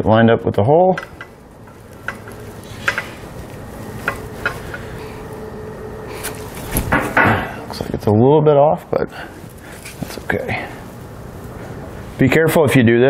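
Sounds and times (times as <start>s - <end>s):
low scraping: 1.2s - 8.2s.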